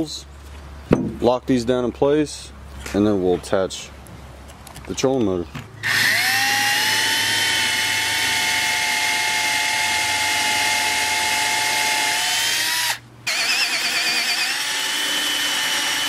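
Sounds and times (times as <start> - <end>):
cordless drill drilling into wood: 5.8 - 16.0.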